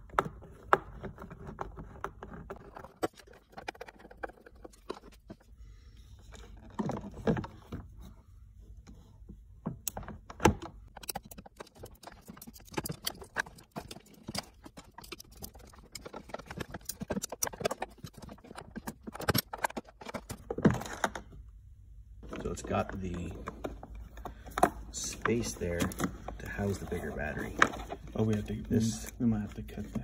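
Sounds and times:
small clicks and crackles: 10.9s - 20.6s.

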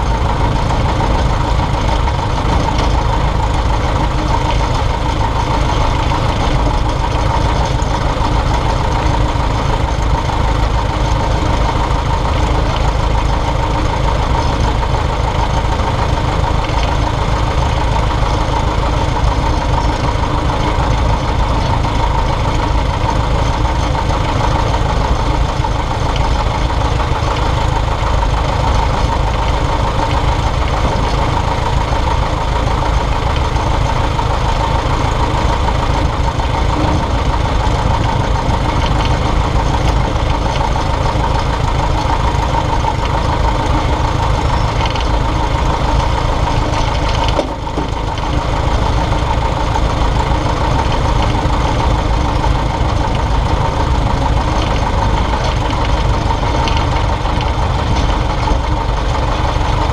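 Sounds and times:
propeller engine running: 0.0s - 59.9s.

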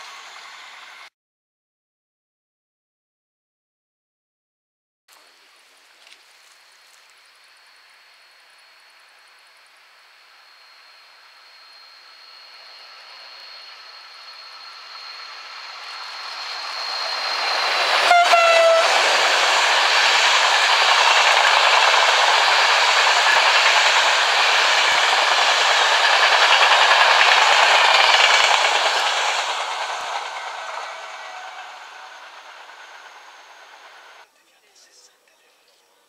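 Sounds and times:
train coaches rushing by: 0.0s - 1.1s, 10.3s - 34.2s
train horn blast: 18.0s - 19.0s.

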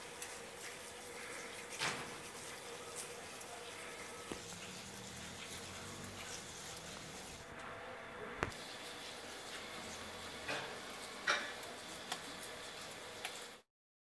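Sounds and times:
rain and wet snow falling: 0.0s - 7.4s, 8.5s - 13.6s.

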